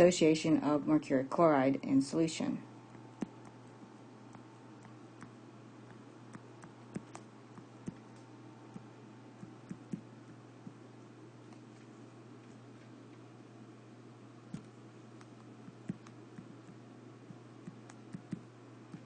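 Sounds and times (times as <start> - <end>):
steady low hum: 0.0 - 19.0
taps and clicks on touchscreen: 5.9 - 8.1, 8.8 - 10.1, 14.5 - 19.0.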